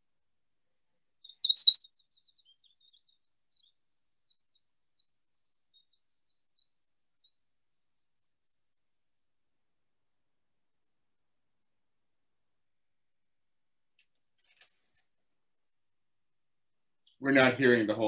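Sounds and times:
bird song through speakers: 1.2s - 9.0s.

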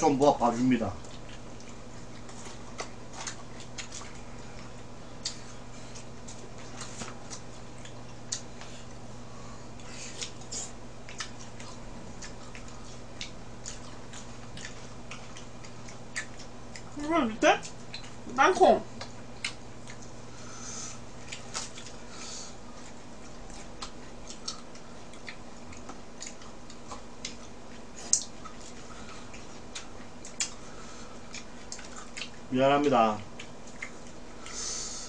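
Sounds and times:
steady low hum: 0.0s - 35.0s
soft chewing: 0.4s - 35.0s.

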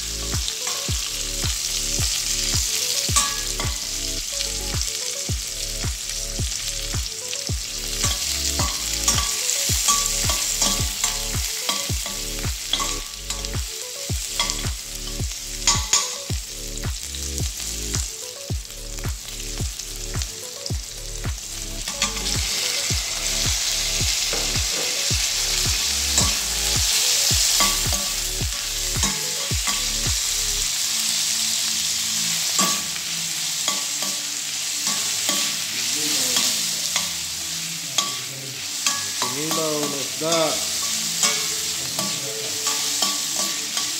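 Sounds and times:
onions sizzling in oil: 0.0s - 43.9s
metal spoon scraping pan: 7.9s - 13.5s, 38.0s - 43.9s.

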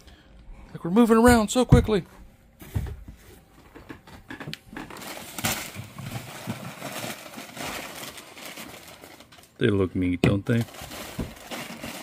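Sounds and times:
packing paper rustling: 4.7s - 9.9s, 10.5s - 12.0s.

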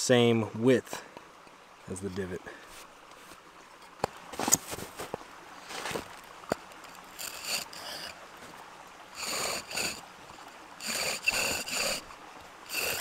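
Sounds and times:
bow drill squeaking whine: 6.8s - 8.2s, 9.1s - 13.0s.

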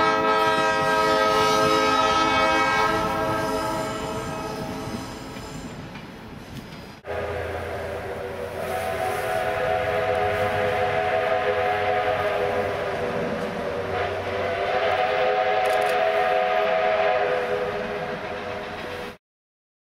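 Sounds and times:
steam locomotive whistle: 0.0s - 5.8s, 7.0s - 19.2s.

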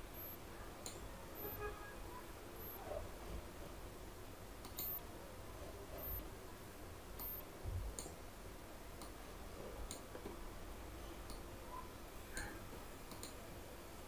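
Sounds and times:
low background hum: 0.0s - 14.0s
computer mouse clicks: 4.6s - 5.0s, 9.9s - 10.1s, 12.4s - 13.4s.

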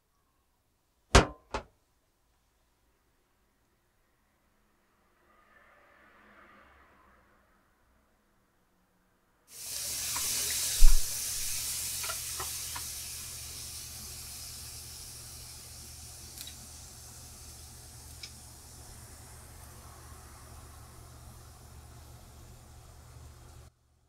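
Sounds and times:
sharp knock: 1.1s - 1.7s
shells sizzling: 9.5s - 19.8s
small pops: 16.3s - 16.7s, 18.0s - 18.4s.

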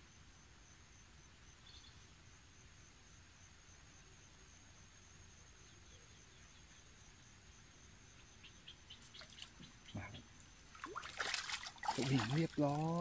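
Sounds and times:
high insect trill: 0.0s - 13.0s
fish splashing: 10.6s - 13.0s.

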